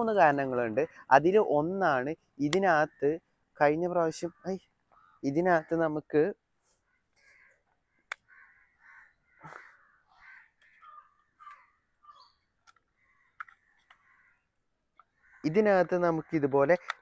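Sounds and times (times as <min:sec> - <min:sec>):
faint bird calls: 0:04.2 - 0:05.7, 0:06.7 - 0:17.0
charging case clicking: 0:12.6 - 0:14.0, 0:16.7 - 0:17.0.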